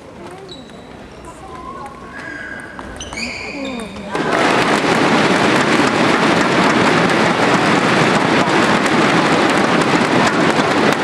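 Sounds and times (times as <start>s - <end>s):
thunderstick balloons clattering: 2.8s - 11.0s.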